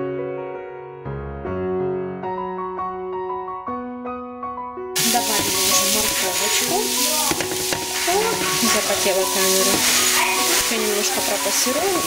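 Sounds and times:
spatula stirring vegetables: 5.0 - 12.0
vegetables sizzling in a frying pan: 5.0 - 12.0.

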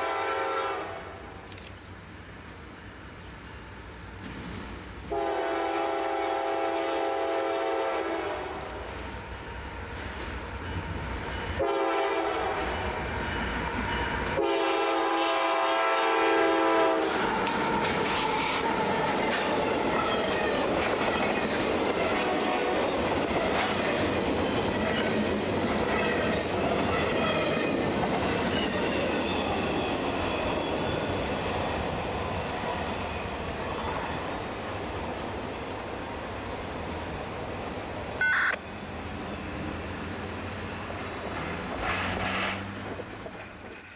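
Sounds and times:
train horn blasts: 0.0 - 1.3, 5.1 - 8.6, 11.5 - 13.0, 14.3 - 17.2
train wheels rumbling on rails: 2.2 - 43.9
high wheel squeal: 28.2 - 39.6.

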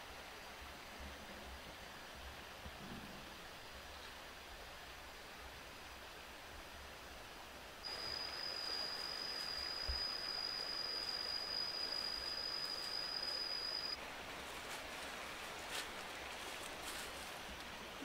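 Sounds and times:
forest ambience hiss: 0.0 - 18.0
high-pitched insect call: 7.8 - 14.0.

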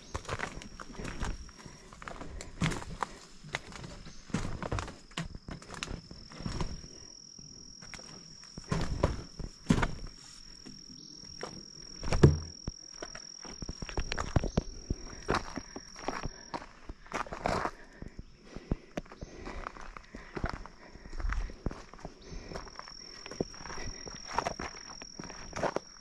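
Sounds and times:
footsteps on wooden stairs: 0.0 - 6.8, 7.8 - 17.3
footsteps on dirt path: 0.0 - 26.0
high-pitched insect drone: 3.6 - 18.3, 20.1 - 26.0.

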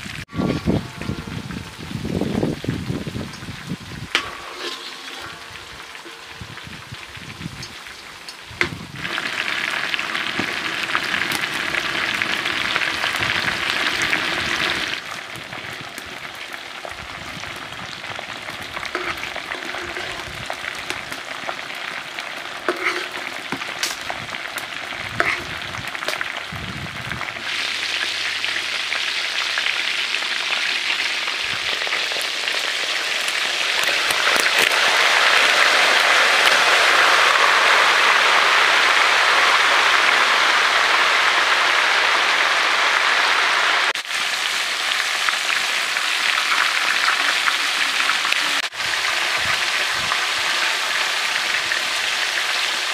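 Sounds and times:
chicken sizzling in oil: 0.0 - 52.9
oil popping: 2.2 - 31.2, 31.8 - 38.2.

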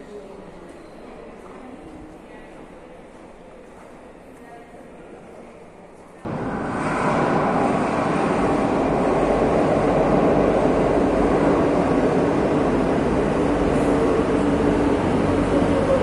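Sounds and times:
metro train rumbling: 6.2 - 16.0
low hum: 6.3 - 16.0.

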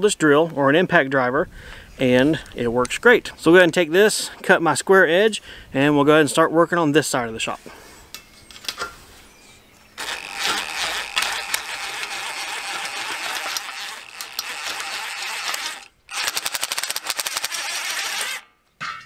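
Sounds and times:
rapid clatter of clicks: 10.0 - 18.4
impact driver cutting metal: 10.0 - 18.5.

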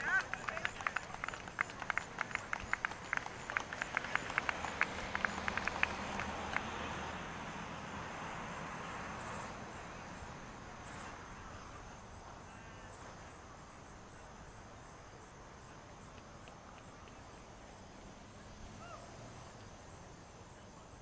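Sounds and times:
faint background hiss: 0.0 - 21.0
sharp insect chirps: 8.7 - 17.8
insects trilling: 8.8 - 17.8.

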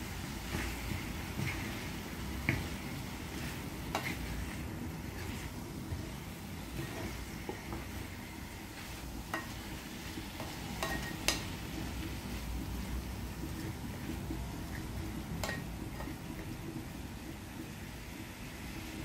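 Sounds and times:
meat and onions sizzling: 0.0 - 19.0
spatula knocking against pan: 2.4 - 2.9, 9.3 - 9.6, 10.4 - 11.6.

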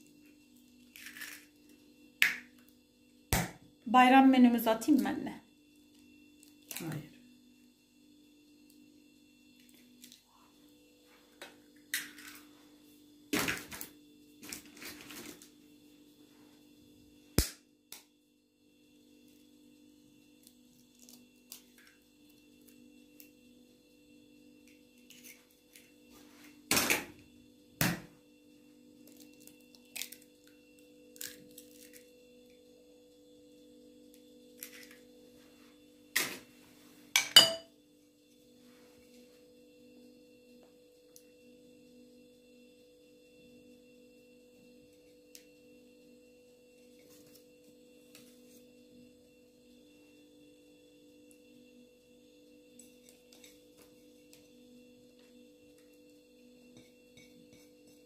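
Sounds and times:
kitchen knocks and clatters: 37.1 - 37.7.

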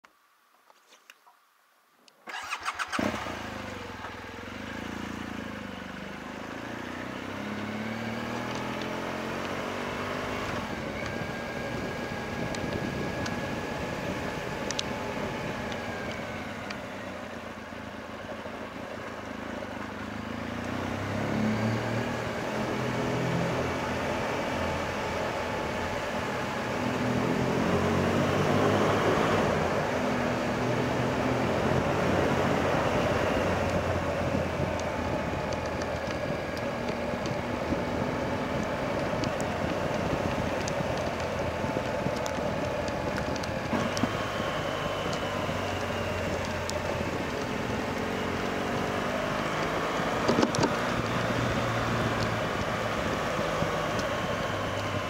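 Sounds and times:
motorcycle engine running: 2.3 - 55.0
rushing wind noise: 9.8 - 15.7.

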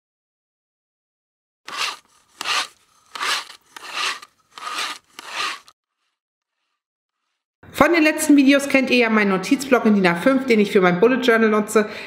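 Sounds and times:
paintbrush strokes on paper: 1.7 - 7.4.

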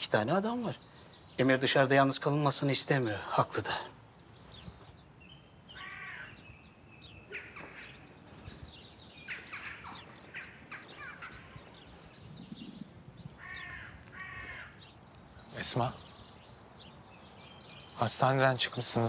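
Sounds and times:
birds chirping: 0.0 - 19.0
longer stacked bird call: 5.7 - 16.5.

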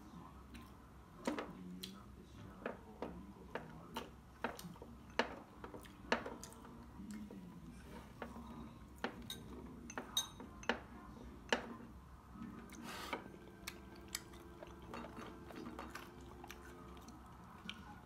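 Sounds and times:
chopsticks clinking against bowls: 9.0 - 10.9, 13.6 - 17.1.

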